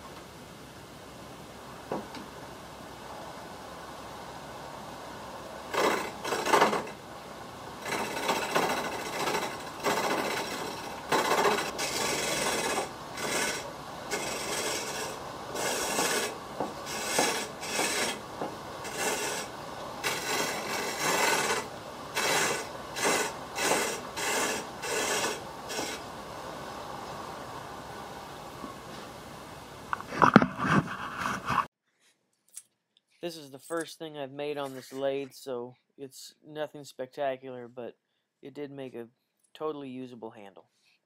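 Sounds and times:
chisel scraping wood on lathe: 0:05.7 - 0:07.0, 0:07.8 - 0:26.1, 0:30.0 - 0:31.7.

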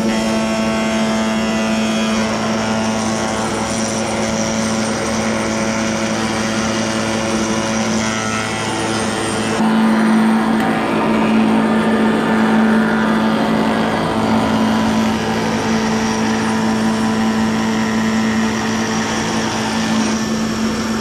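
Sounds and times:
cutter shaping wood: 0:00.0 - 0:21.0
spindle moulder humming: 0:00.0 - 0:21.0.

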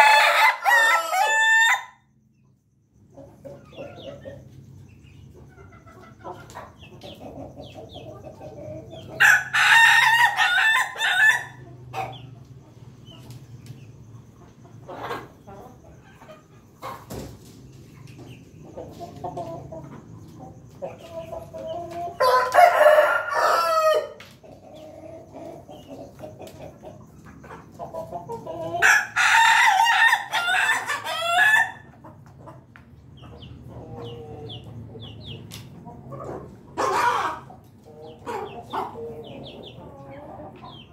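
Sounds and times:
rooster crowing: 0:00.0 - 0:02.1, 0:09.2 - 0:11.6, 0:22.2 - 0:24.2, 0:28.8 - 0:31.9
chicken clucking: 0:00.0 - 0:40.9.

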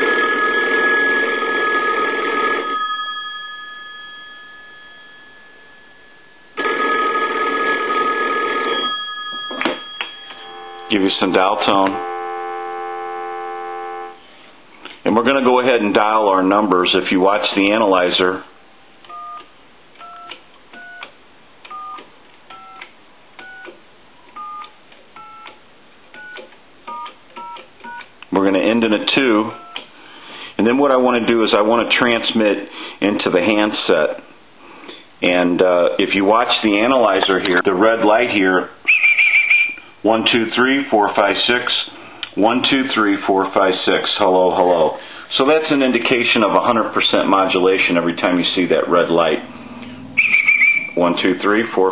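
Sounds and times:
payphone bells ringing: 0:00.0 - 0:12.2
two-tone keypad beeps: 0:19.1 - 0:21.1, 0:26.2 - 0:28.1, 0:29.6 - 0:29.8.

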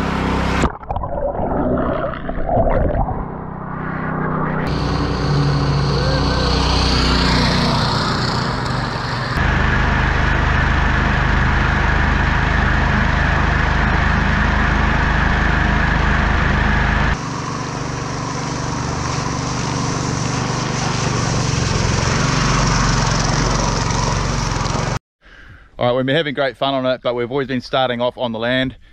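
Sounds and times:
small petrol engine at high throttle: 0:04.6 - 0:25.0
water spray rushing: 0:17.2 - 0:24.5.

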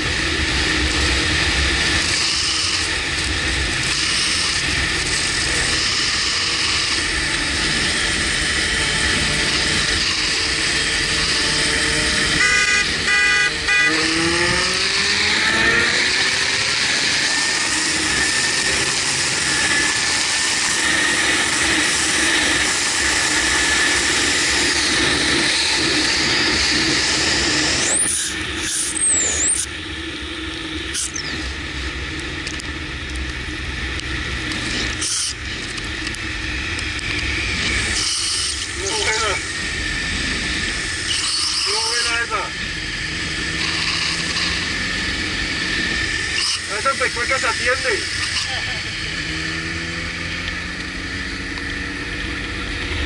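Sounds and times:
motorcycle engine running: 0:00.0 - 0:53.0
rising engine whine: 0:00.0 - 0:53.0
wind rushing over microphone: 0:38.6 - 0:41.2.

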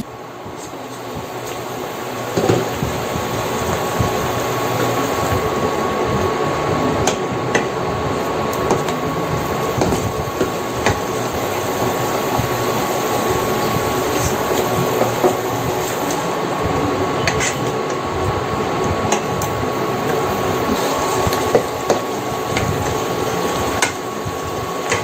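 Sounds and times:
sauce sizzling in hot oil: 0:08.1 - 0:16.3, 0:19.2 - 0:25.0.

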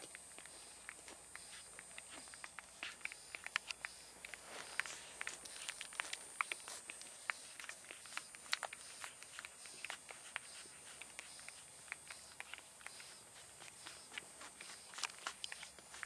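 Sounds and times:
puppies suckling wet clicks: 0:00.0 - 0:16.0.

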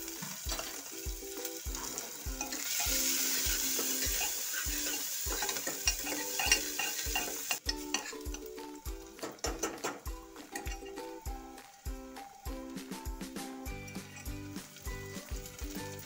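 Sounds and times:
garlic and onion sizzling in oil: 0:00.0 - 0:16.0.

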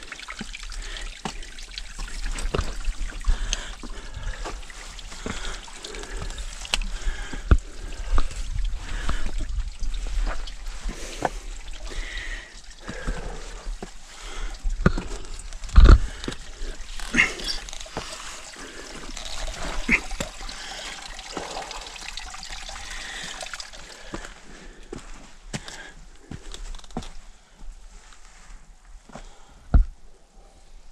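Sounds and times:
footsteps and scrapes on rock: 0:14.8 - 0:18.2, 0:25.0 - 0:27.3.

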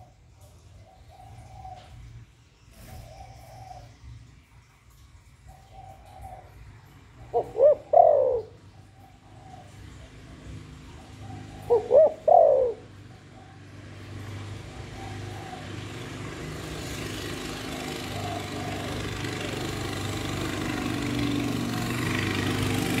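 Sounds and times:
dove cooing: 0:00.8 - 0:02.1, 0:02.8 - 0:03.9, 0:05.5 - 0:20.3.

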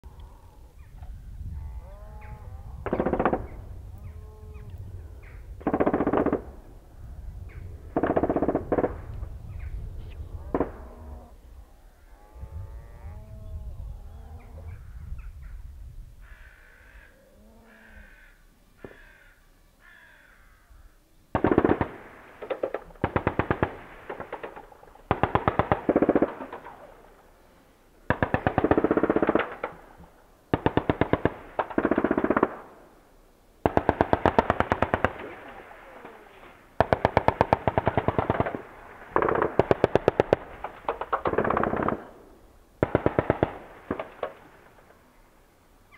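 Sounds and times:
birds calling: 0:00.0 - 0:06.4, 0:13.3 - 0:22.0
machine gun firing bursts: 0:02.8 - 0:03.6, 0:05.6 - 0:06.6, 0:07.9 - 0:09.1, 0:21.3 - 0:27.1, 0:28.1 - 0:29.9, 0:30.5 - 0:32.7, 0:33.6 - 0:35.6, 0:36.8 - 0:42.2, 0:42.8 - 0:44.7.

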